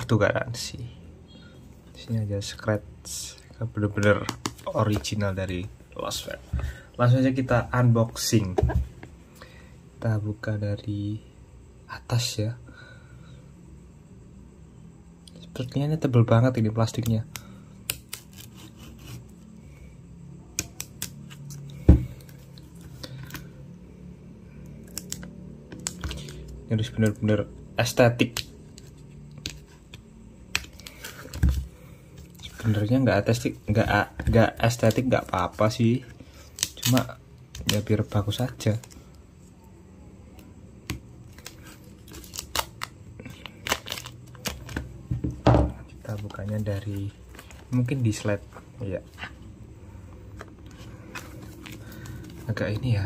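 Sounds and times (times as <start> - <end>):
plastic crinkling: 41.3 - 44.8.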